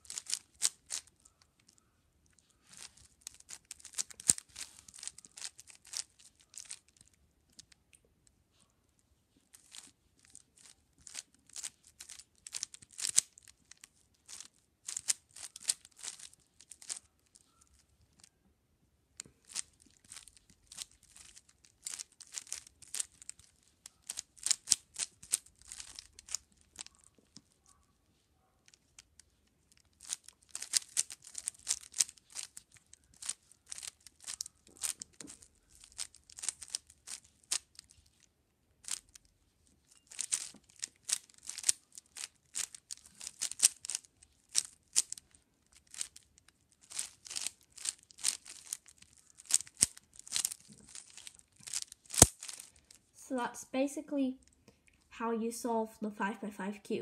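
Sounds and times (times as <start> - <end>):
puzzle cube clicking and scraping: 0.0 - 1.8, 2.4 - 7.7, 9.5 - 18.3, 19.2 - 27.5, 29.8 - 38.2, 38.8 - 39.2, 39.9 - 53.0.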